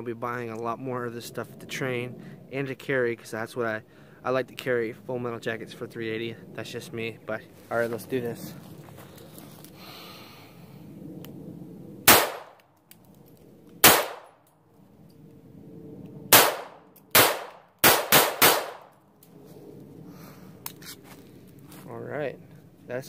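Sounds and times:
pistol shots: 0:12.1 - 0:12.6, 0:13.8 - 0:14.4, 0:16.3 - 0:18.9.

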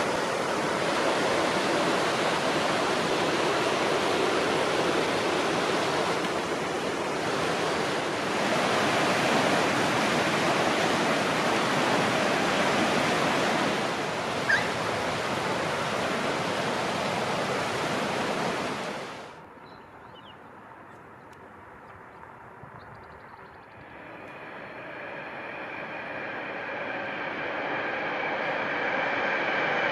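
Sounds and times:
flooded creek rushing: 0:00.0 - 0:19.4.

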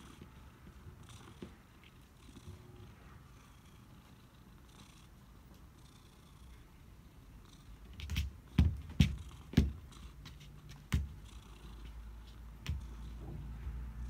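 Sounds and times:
cat paws thumping on wooden floor: 0:08.0 - 0:13.7.

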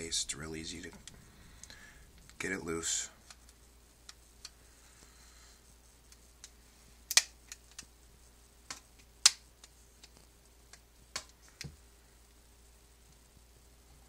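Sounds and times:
sharp plastic clicks: 0:06.1 - 0:07.9.

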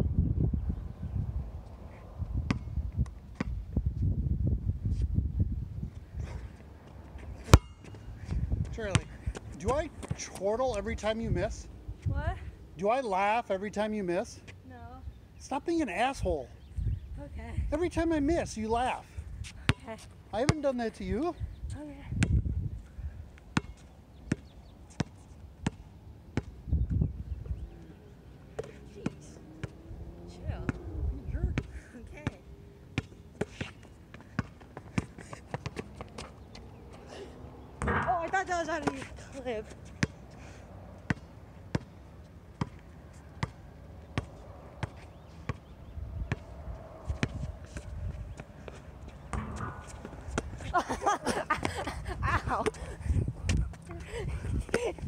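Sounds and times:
basketball bouncing on hard court: 0:02.5 - 0:02.7, 0:34.4 - 0:35.8, 0:37.8 - 0:39.1, 0:41.1 - 0:42.0, 0:47.2 - 0:47.4, 0:49.3 - 0:50.6.

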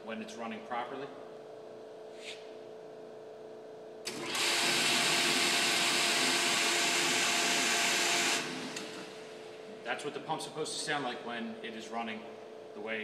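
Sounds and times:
electric pump motor whining: 0:04.0 - 0:09.7.

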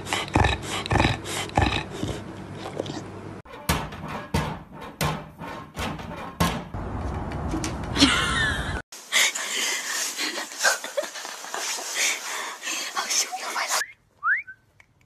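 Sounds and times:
dog vocal sounds: 0:00.0 - 0:03.2.

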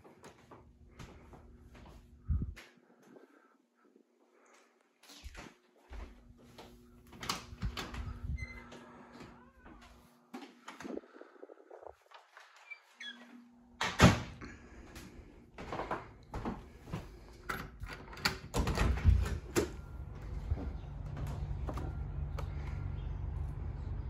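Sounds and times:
low outdoor rumble: 0:19.0 - 0:24.0.

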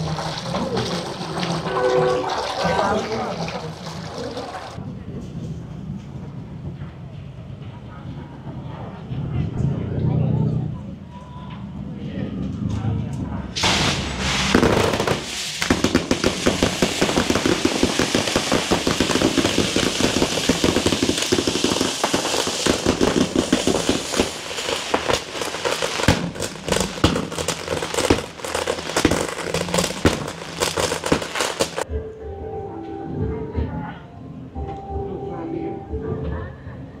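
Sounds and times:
fireworks crackling and popping: 0:00.0 - 0:04.8, 0:13.6 - 0:31.9
firework bangs: 0:13.6 - 0:31.9.

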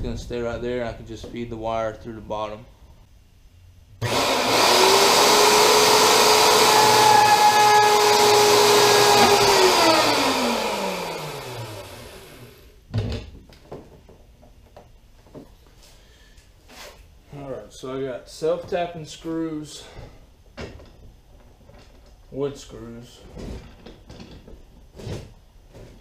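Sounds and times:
electric router whining: 0:04.0 - 0:12.7.

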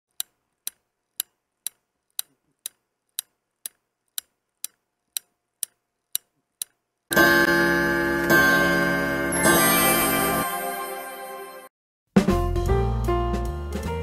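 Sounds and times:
clock ticking: 0:00.1 - 0:09.6.

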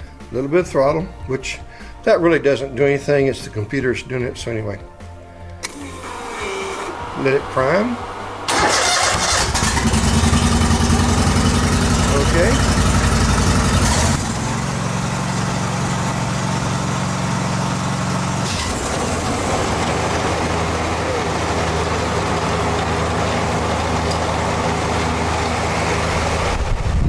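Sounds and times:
mower engine running: 0:05.6 - 0:27.0.

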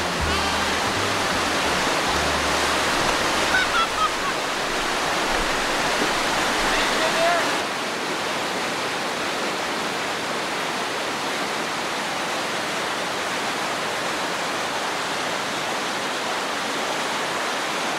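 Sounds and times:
rapids rushing over boulders: 0:00.0 - 0:17.9.

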